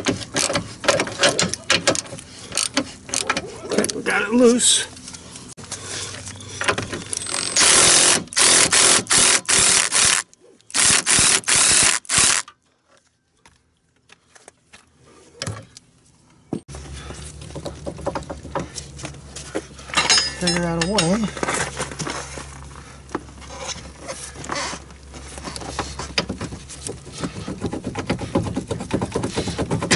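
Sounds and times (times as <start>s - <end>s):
impact wrench bursts: 7.2s - 12.5s.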